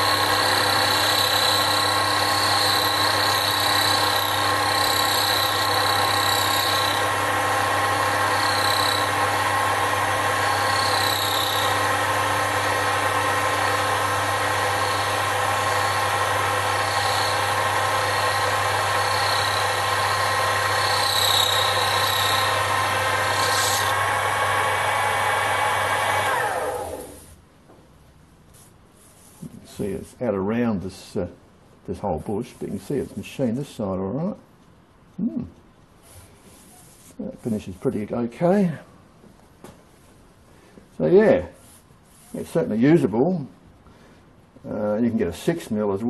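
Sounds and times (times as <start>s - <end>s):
lathe motor hum: 0.0s - 27.2s
cutting tool squeaks: 8.3s - 9.1s, 10.4s - 11.8s, 19.0s - 22.5s.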